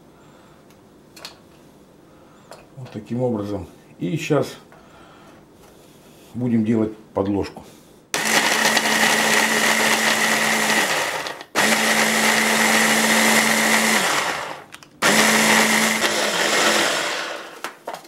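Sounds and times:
hand blender grinding cookies: 8.2 - 17.8.

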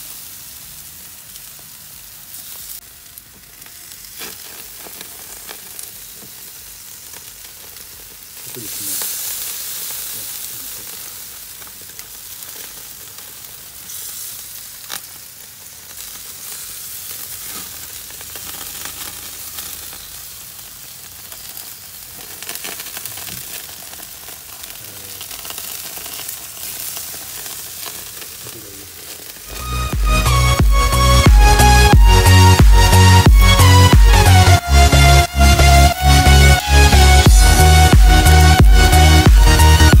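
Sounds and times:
meat sizzling on a grill: 0.0 - 30.4.

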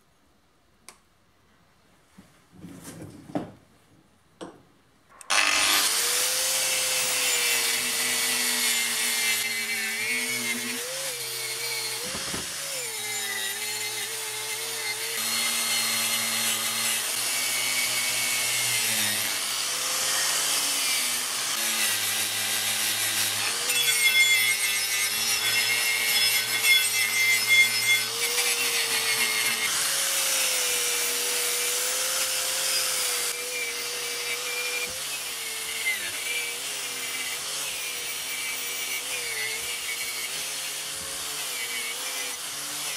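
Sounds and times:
electric power tool motor: 5.2 - 42.9.

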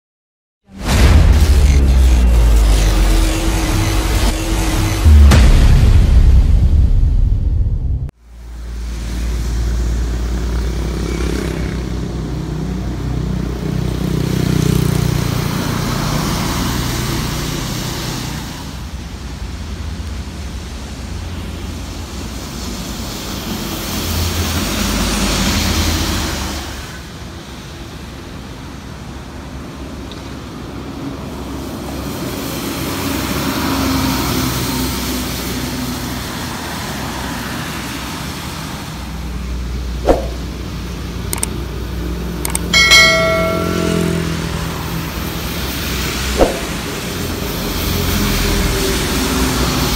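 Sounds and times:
tyre hiss on wet road: 8.3 - 11.5, 15.4 - 39.4, 47.0 - 49.9.

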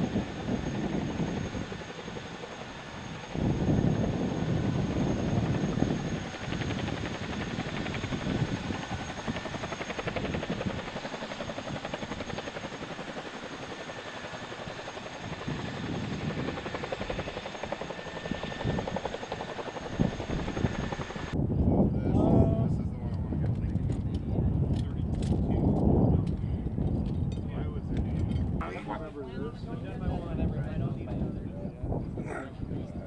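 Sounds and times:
helicopter running: 0.0 - 21.4.

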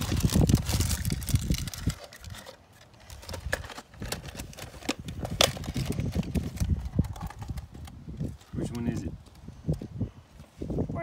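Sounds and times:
wind buffeting microphone: 0.0 - 2.4, 3.1 - 11.0.

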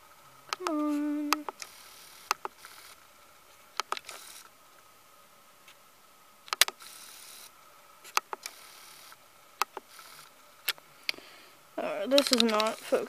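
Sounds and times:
faint high whine: 0.0 - 13.0
camera autofocus clicks: 3.8 - 4.5, 8.1 - 10.3, 12.2 - 12.9
brief whirring hiss: 4.0 - 4.5.

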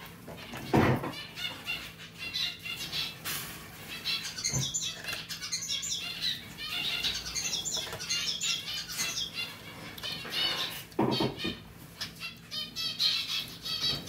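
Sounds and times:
high chirping calls: 3.8 - 14.0.

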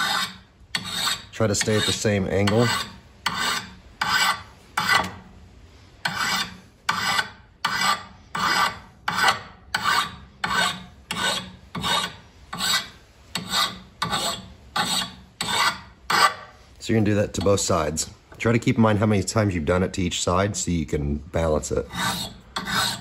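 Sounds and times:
file rasping on steel blade: 0.0 - 5.2, 6.0 - 16.6, 21.7 - 23.0.

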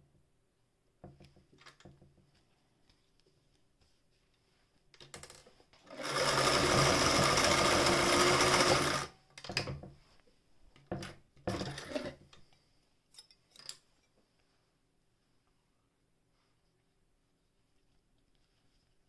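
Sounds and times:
sewing machine stitching: 5.8 - 9.2, 11.4 - 12.2.

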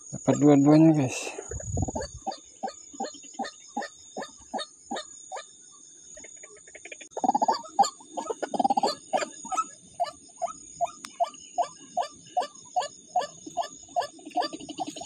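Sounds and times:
waterhen calling: 1.1 - 5.5, 6.3 - 15.0.

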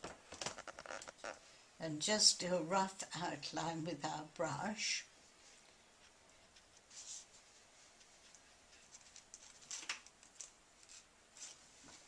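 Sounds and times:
brush dabbing on paper: 5.4 - 9.0.

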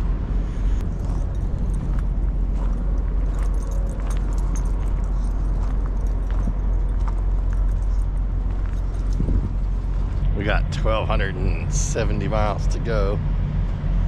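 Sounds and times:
steady low rumble: 0.0 - 14.0
dog leash jingling: 1.0 - 9.7.

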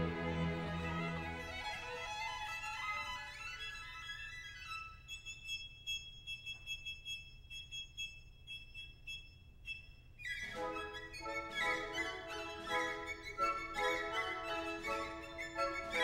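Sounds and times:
violin melody: 0.0 - 5.2, 10.3 - 16.0.

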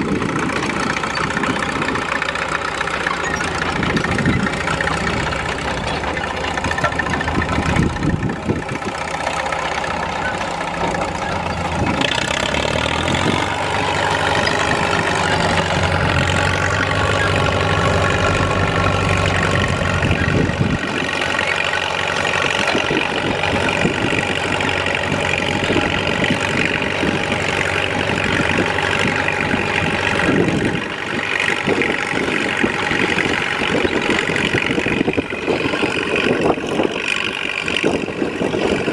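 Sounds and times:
crawler tractor diesel engine: 0.0 - 38.9.

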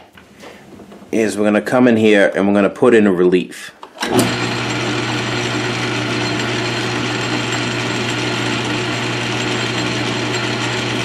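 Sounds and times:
metal lathe humming: 4.0 - 11.0.

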